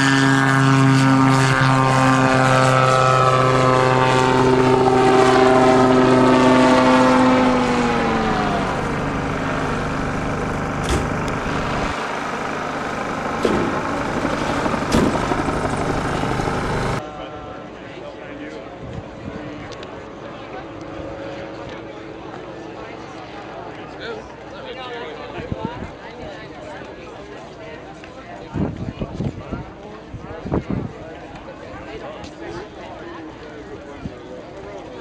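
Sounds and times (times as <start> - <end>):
gyroplane engine and propeller: 0.0 - 35.0
sharp knocks: 14.9 - 15.2.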